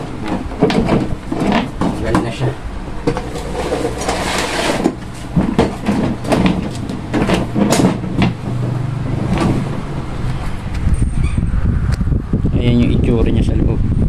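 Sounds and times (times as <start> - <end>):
plastic casing knocks and scrapes: 0.0 - 9.8.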